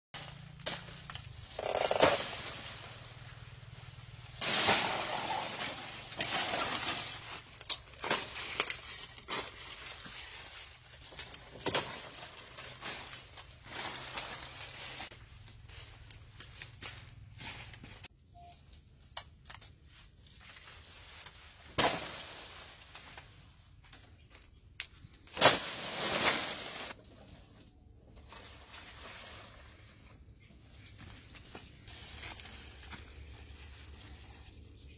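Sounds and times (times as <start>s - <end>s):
rustling and knocking of banana bunch: 0.2s - 18.1s, 30.7s - 34.4s.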